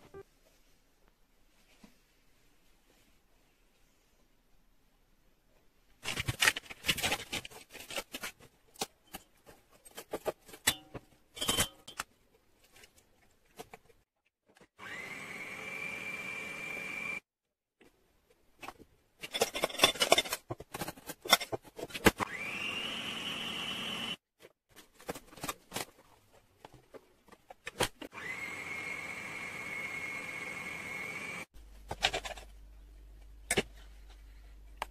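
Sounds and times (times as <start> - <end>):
stand mixer motor whine: 14.8 - 17.2, 22.3 - 24.2, 28.2 - 31.4.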